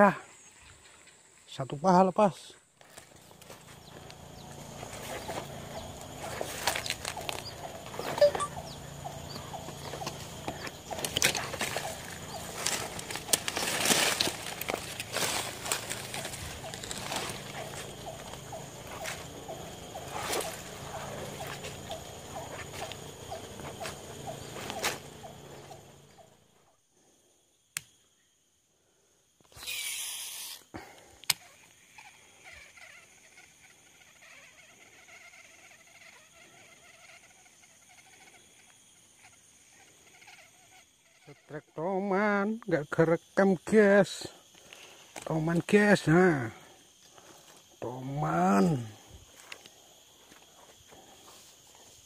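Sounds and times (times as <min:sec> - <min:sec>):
footsteps through grass and leaves: 0:02.7 - 0:26.1, 0:49.0 - 0:52.0
fishing reel clicks: 0:29.5 - 0:30.7
fishing reel whirring: 0:29.5 - 0:30.7.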